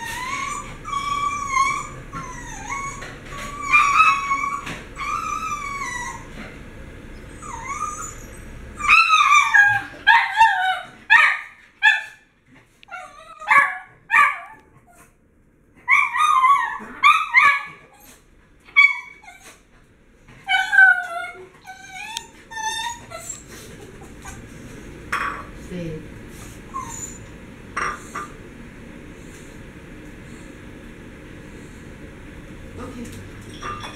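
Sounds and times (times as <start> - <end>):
dogs whining and yipping: 0.0 - 6.5, 7.1 - 12.1, 12.9 - 15.1, 15.8 - 19.6, 20.3 - 24.5, 26.7 - 27.4, 33.5 - 33.9.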